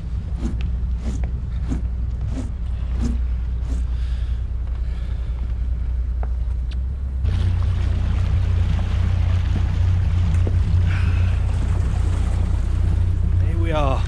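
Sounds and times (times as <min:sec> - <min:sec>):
boat engine droning: 0:00.0 - 0:14.0
footsteps on wooden deck: 0:01.0 - 0:06.8.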